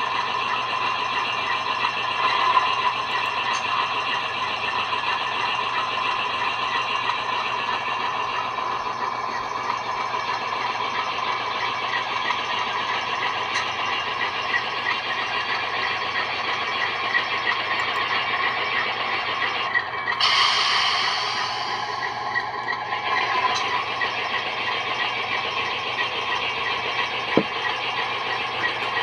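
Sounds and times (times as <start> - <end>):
diesel locomotive engine running: 0.0 - 29.0
burst of hiss: 20.2 - 21.9.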